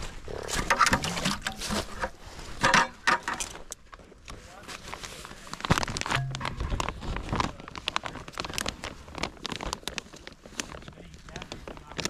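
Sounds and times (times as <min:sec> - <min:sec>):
plastic bag crinkling: 0:04.8 - 0:12.0.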